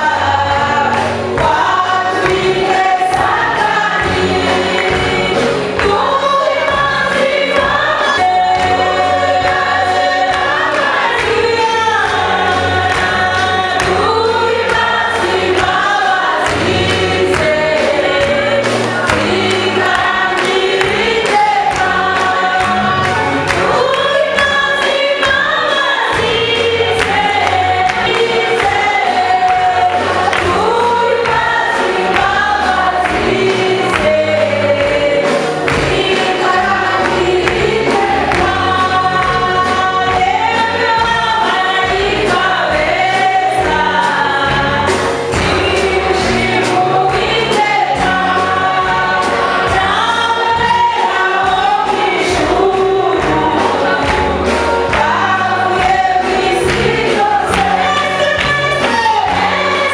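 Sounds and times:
gospel choir singing: 0:00.0 - 0:59.9.

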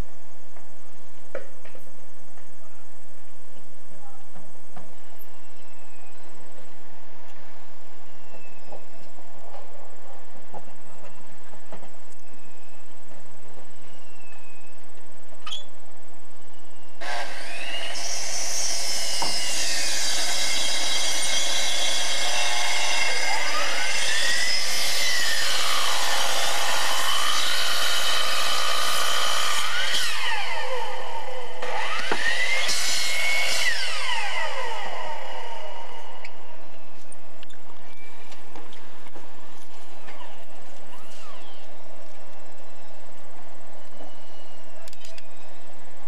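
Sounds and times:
electric miter saw cutting wood: 0:17.0 - 0:36.8.

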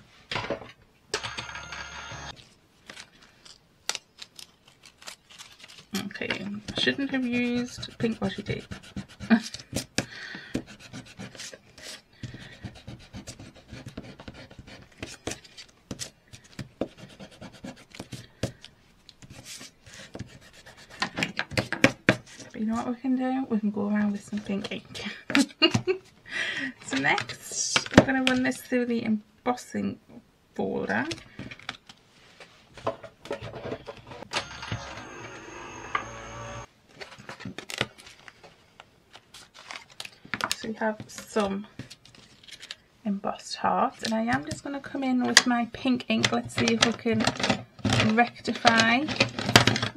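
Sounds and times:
hand tool scratching cardstock: 0:06.8 - 0:10.0, 0:10.6 - 0:15.4
embossing machine rollers whining: 0:34.3 - 0:36.7.

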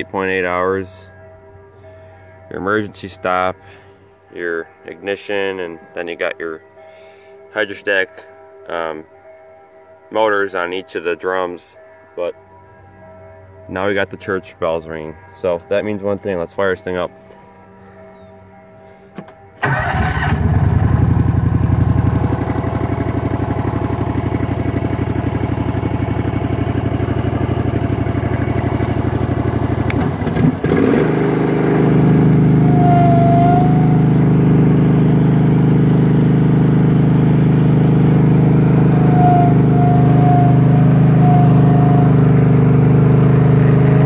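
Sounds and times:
roller engine starting and idling: 0:19.2 - 0:44.0.

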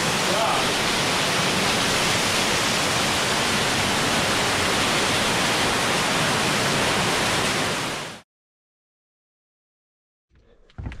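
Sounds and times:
water rushing through rock gorge: 0:00.0 - 0:08.2.

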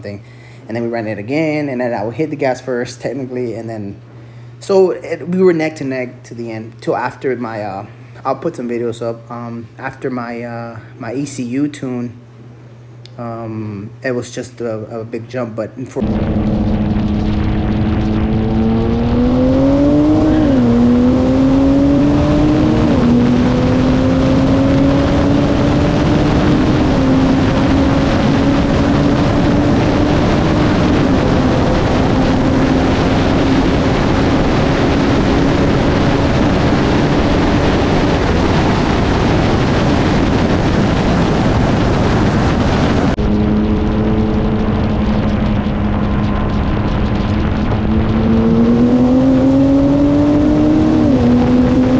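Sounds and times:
car engine accelerating hard: 0:16.0 - 0:51.9
wind and road noise: 0:16.0 - 0:51.9.

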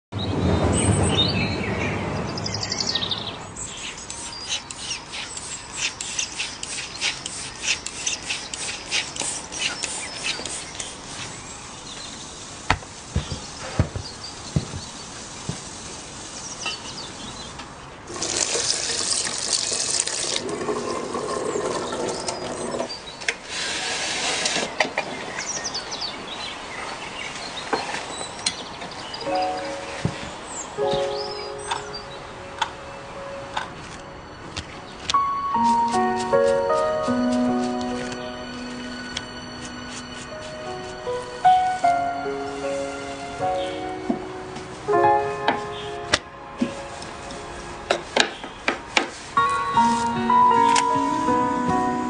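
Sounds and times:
tap water running into sink: 0:18.1 - 0:22.5.

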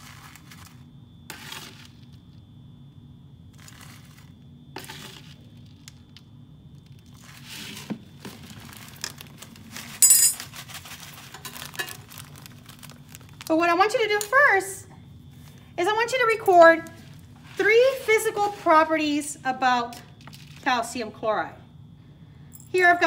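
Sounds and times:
metal scoop scraping granules: 0:00.0 - 0:02.0, 0:04.8 - 0:05.5, 0:17.4 - 0:19.1
plastic bag crinkling: 0:06.8 - 0:14.2
granules pouring into bag: 0:07.0 - 0:13.6
metallic clink: 0:10.0 - 0:10.4.

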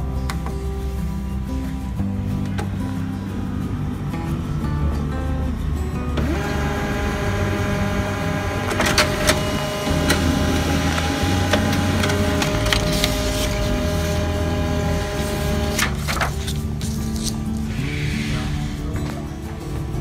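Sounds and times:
printer scanner motor whining: 0:06.2 - 0:16.4
printer mechanism clicking: 0:06.2 - 0:17.4.

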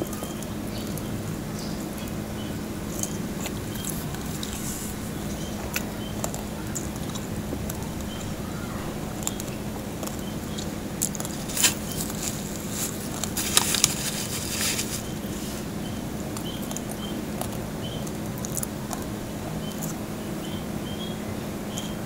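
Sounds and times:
faint high chirps: 0:00.0 - 0:12.7
low hum: 0:00.0 - 0:22.0
crispy skin crackling: 0:01.9 - 0:20.0.

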